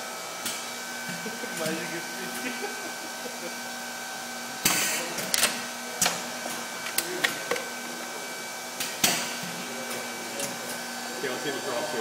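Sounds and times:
steady machine hum: 0.0 - 12.0.

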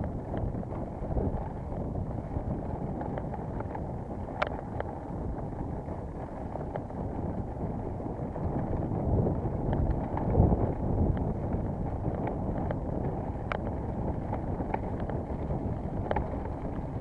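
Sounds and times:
rumbling wind on microphone: 0.0 - 17.0
light clicks and ticks: 2.9 - 5.0, 12.1 - 17.0.

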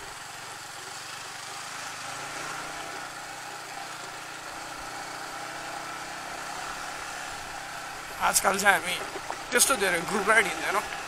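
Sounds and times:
motorcycle engine running: 0.0 - 11.0
wind and road noise: 0.0 - 11.0.

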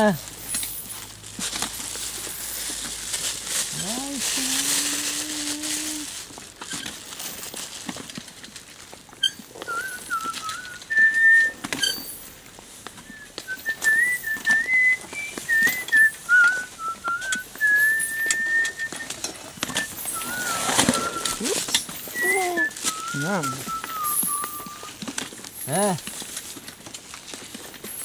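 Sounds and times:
rustling: 0.0 - 28.0
person whistling a tune: 9.6 - 12.1, 13.0 - 25.0.

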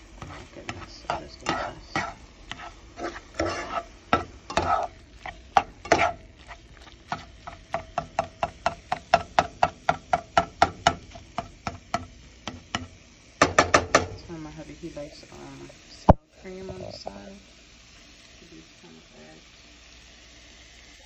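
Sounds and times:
spatula scraping frying pan: 0.0 - 14.2
spatula knocking against pan: 3.4 - 4.8, 7.1 - 14.2.

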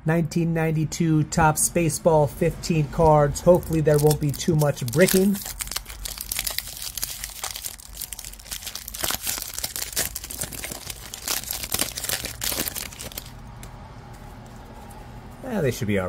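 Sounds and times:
wax paper wrapper crinkling and tearing: 3.5 - 13.4.

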